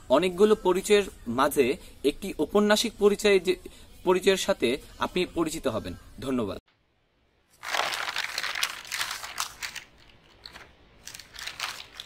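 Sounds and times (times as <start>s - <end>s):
paper crumpling: 7.6s - 12.0s.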